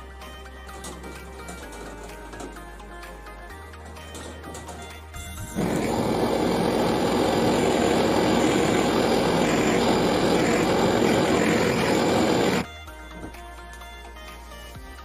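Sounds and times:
torch flame rushing hiss: 0:05.6 - 0:12.6.

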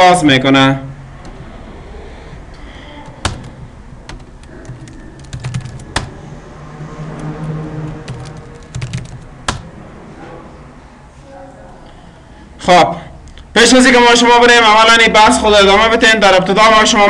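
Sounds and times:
computer keyboard typing: 0:02.9 - 0:06.2, 0:07.1 - 0:09.7.

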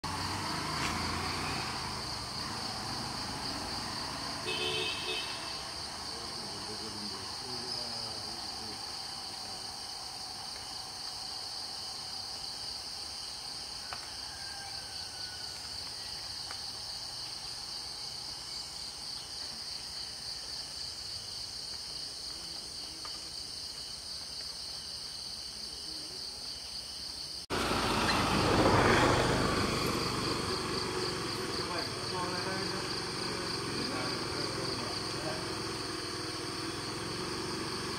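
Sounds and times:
insect chorus buzzing: 0:00.0 - 0:37.9
loud rough noise: 0:27.5 - 0:37.9.

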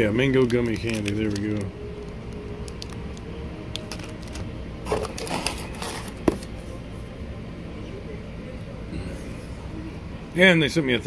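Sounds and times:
plastic wrappers crinkling: 0:00.0 - 0:06.5.

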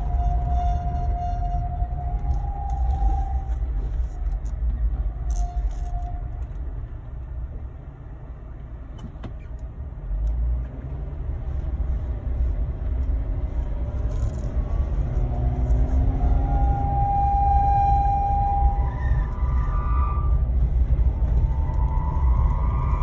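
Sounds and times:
high squeal: 0:00.0 - 0:04.5, 0:05.1 - 0:06.6, 0:14.1 - 0:23.0
engine and road rumble: 0:00.0 - 0:23.0.

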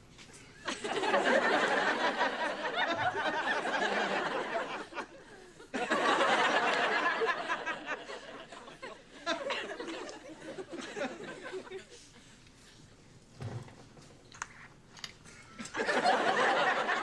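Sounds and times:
studio audience laughing: 0:00.7 - 0:12.3, 0:15.6 - 0:17.0.

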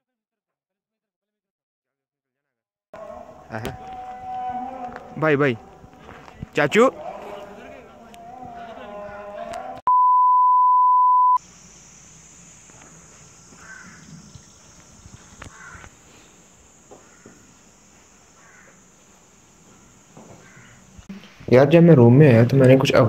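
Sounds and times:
test tone beep: 0:09.9 - 0:11.4
high hiss: 0:11.4 - 0:21.5.

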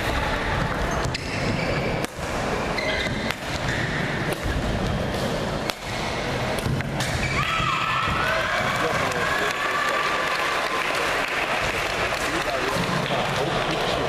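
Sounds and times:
racket hitting shuttlecock: 0:01.0 - 0:07.4.

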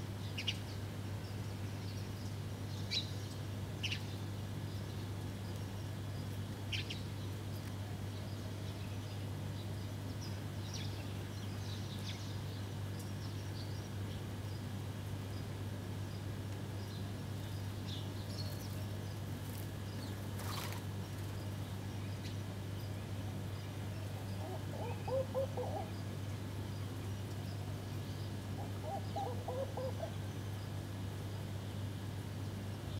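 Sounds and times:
steady low hum: 0:00.0 - 0:32.9
small birds chirping: 0:00.1 - 0:32.9
doves cooing: 0:23.8 - 0:26.4, 0:28.4 - 0:30.3.

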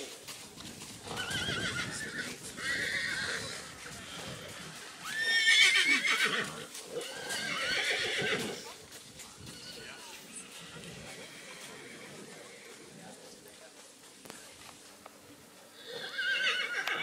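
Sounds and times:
horses whinnying: 0:01.0 - 0:08.6, 0:09.4 - 0:12.7, 0:15.8 - 0:17.0.

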